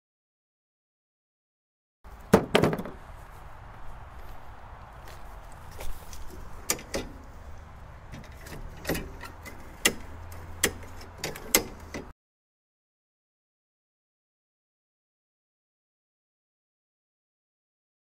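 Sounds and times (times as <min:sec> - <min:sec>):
mower parts and tools clicking: 0:05.6 - 0:12.1.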